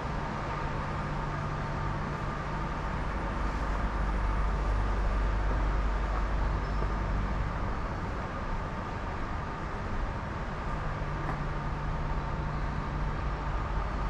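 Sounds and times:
low rumble of subway platform: 0.0s - 14.0s.

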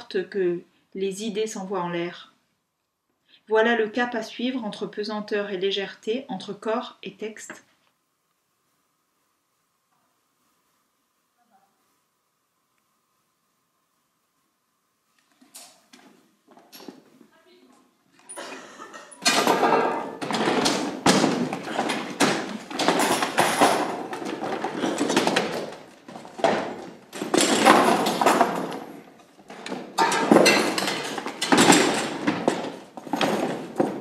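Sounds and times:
chairs clattering and scraping: 15.2s - 17.2s, 18.2s - 34.0s
footsteps: 15.2s - 18.4s, 19.4s - 34.0s.

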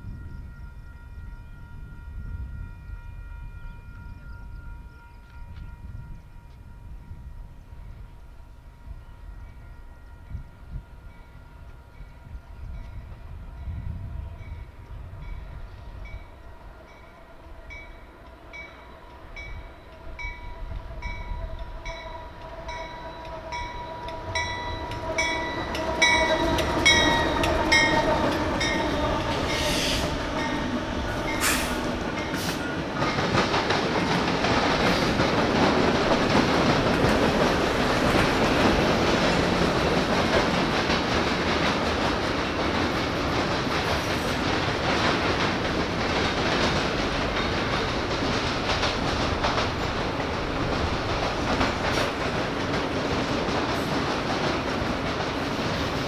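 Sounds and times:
train bell ringing: 0.0s - 34.4s, 46.8s - 48.6s
diesel locomotive passing: 0.0s - 56.0s
clickety-clack of train wheels: 1.8s - 56.0s.

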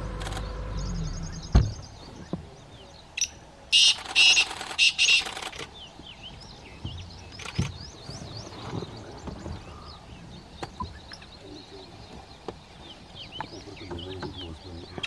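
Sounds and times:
bird harsh grating call: 3.2s - 5.7s.

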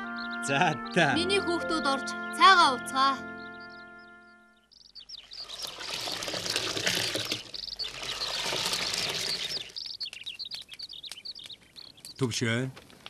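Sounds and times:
small birds chirping: 0.0s - 13.0s
liquid pouring and splashing: 5.3s - 9.9s.

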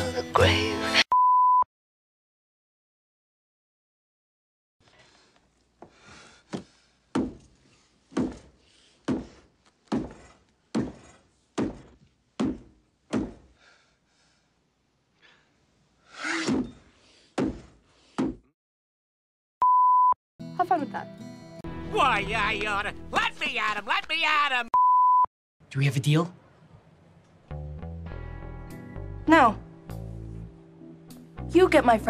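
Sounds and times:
censor bleep: 1.1s - 1.7s, 19.6s - 20.2s, 24.8s - 25.3s.

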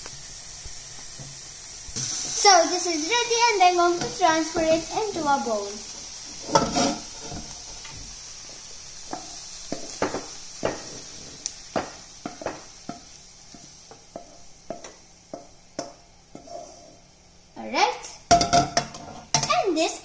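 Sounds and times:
faint sizzle from pan: 0.0s - 20.0s
wooden spoon knocking on frying pan: 9.1s - 11.1s, 11.7s - 16.0s, 18.3s - 19.5s.

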